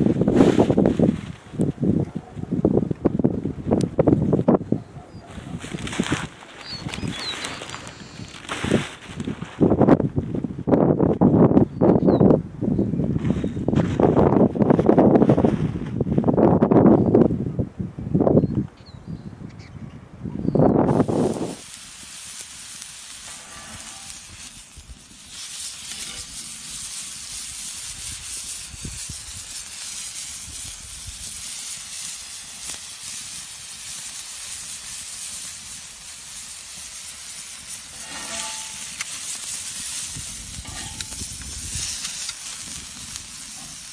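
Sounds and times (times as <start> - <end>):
meat sizzling on griddle: 20.9 - 43.9.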